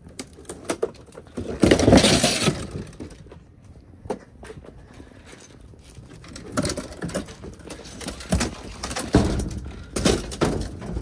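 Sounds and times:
wood and metal knocks and scrapes: 0:06.0 - 0:11.0.

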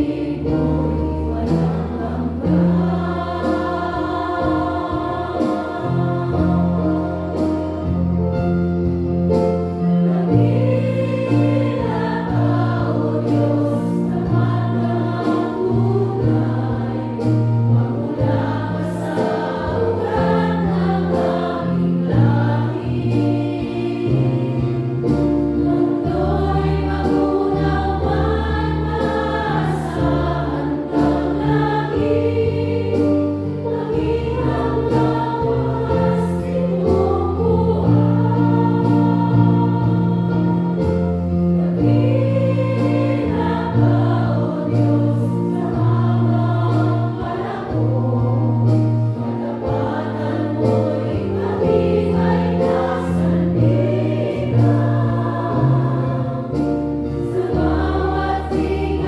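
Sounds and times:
women singing worship song: 0:00.0 - 0:07.9, 0:10.0 - 0:59.0
instrumental backing with bass: 0:00.0 - 0:59.0.

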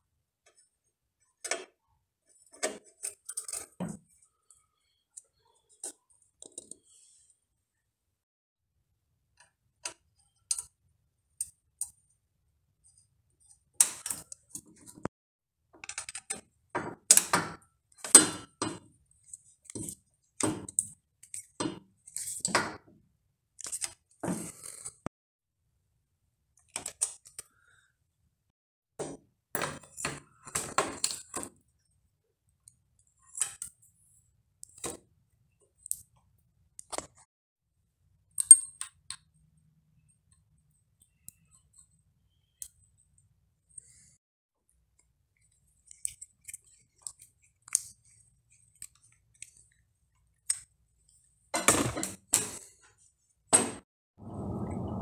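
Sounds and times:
metallic clicks and clinks: 0:38.3 - 0:39.2.

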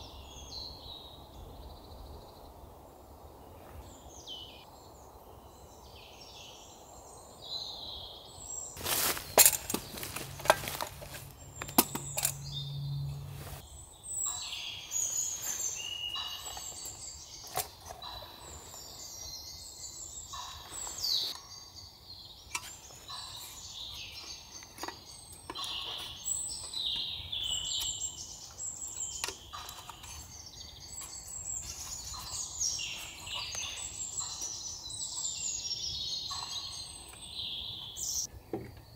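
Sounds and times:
songbirds chirping and warbling: 0:00.0 - 0:38.9
sharp clicks and knocks: 0:09.4 - 0:12.4.

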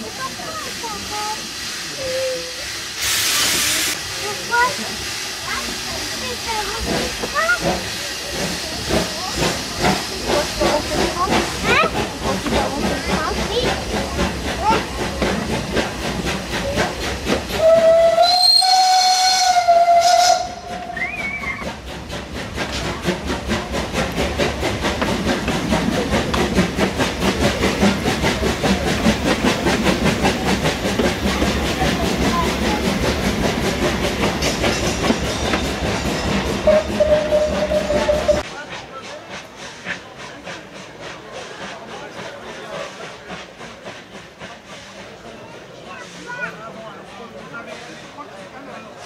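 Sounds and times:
steam tram clatter and hiss: 0:00.0 - 0:49.0
steam whistle blast: 0:17.6 - 0:21.6, 0:36.6 - 0:38.4.

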